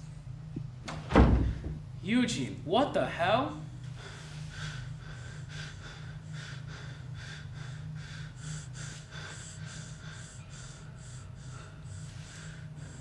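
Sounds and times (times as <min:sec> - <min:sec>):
low hum: 0:00.0 - 0:02.7, 0:03.5 - 0:13.0
man breathing fast and hard: 0:03.7 - 0:13.0.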